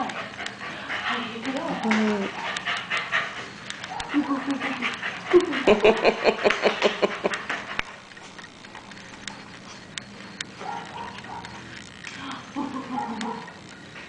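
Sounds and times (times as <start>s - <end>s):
dog panting: 0.0s - 8.4s.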